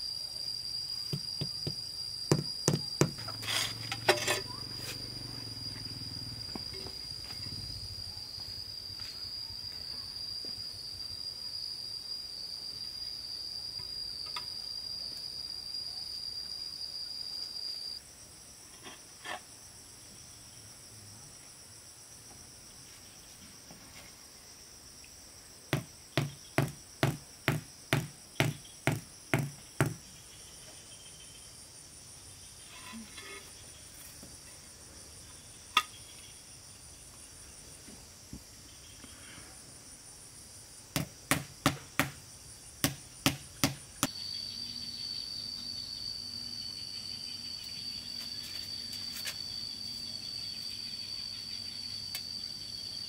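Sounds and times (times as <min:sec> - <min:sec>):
insects trilling: 0:00.0 - 0:53.0
sharp knocks: 0:01.1 - 0:03.2, 0:25.7 - 0:30.0, 0:41.0 - 0:42.2, 0:42.8 - 0:44.1.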